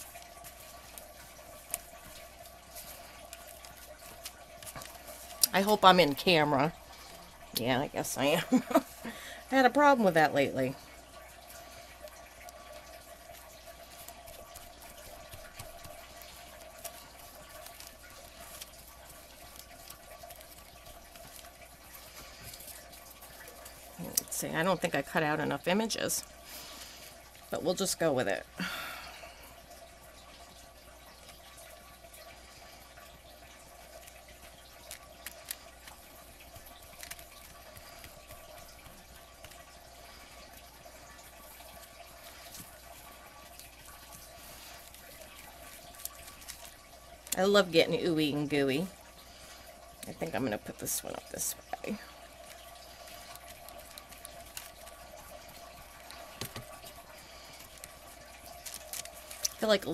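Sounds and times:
soft ticks from handling paper: 0:00.0 - 0:07.3, 0:11.2 - 0:25.1, 0:33.4 - 0:47.6, 0:51.8 - 0:59.9
faint steady hiss: 0:00.0 - 0:59.9.

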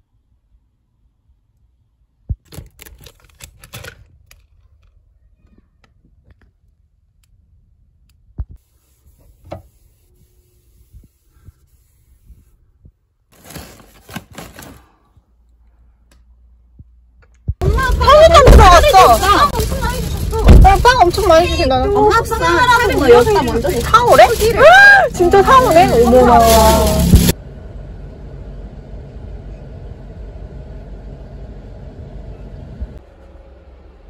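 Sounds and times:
packets rustling and clattering: 0:13.3 - 0:15.0, 0:18.0 - 0:27.4.

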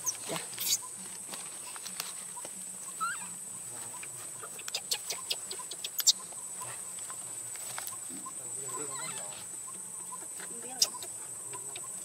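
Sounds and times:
dry leaves crackling: 0:00.0 - 0:03.4, 0:06.9 - 0:08.2.

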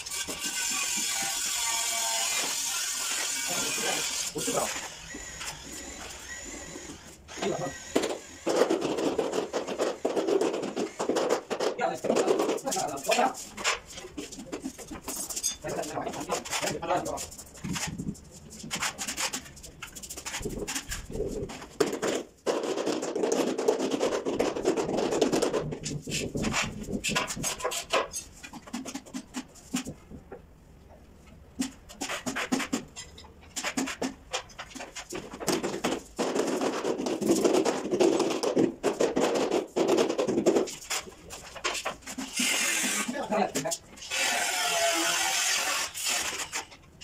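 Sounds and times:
trowel scraping mortar on tile: 0:00.0 - 0:11.6, 0:25.8 - 0:30.0, 0:40.4 - 0:46.8.

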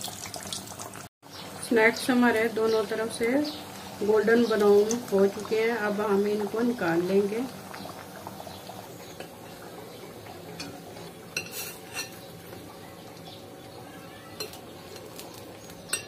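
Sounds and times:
metal spoon clinking on wok and plate: 0:11.4 - 0:12.2.

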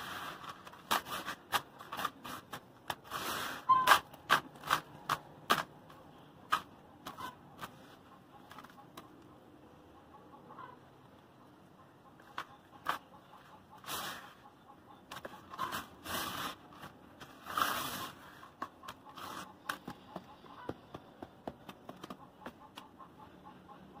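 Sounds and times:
hands raking through cement grit: 0:00.0 - 0:05.7, 0:13.8 - 0:14.4, 0:15.5 - 0:19.7.

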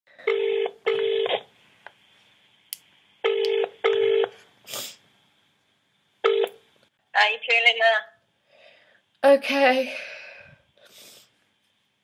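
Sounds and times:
telephone ringing tone: 0:00.2 - 0:01.5, 0:03.2 - 0:04.4, 0:06.2 - 0:06.6.

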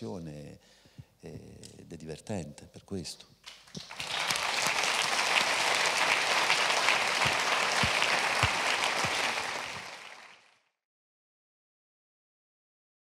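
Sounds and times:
audience applauding: 0:03.5 - 0:10.7.

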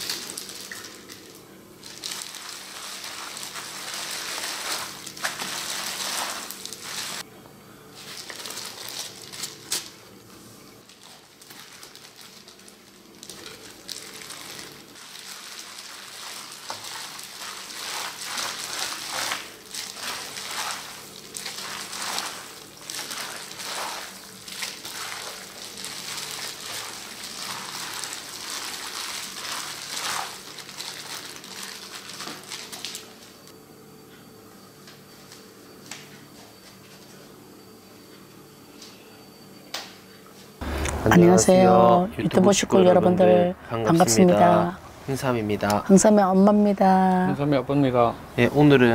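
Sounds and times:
wet squelching of food mixing: 0:00.0 - 0:07.2, 0:11.0 - 0:33.2.

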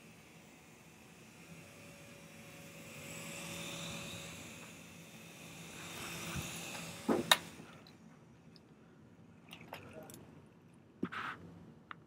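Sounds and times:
toy helicopter rotor whirring: 0:00.0 - 0:08.1.

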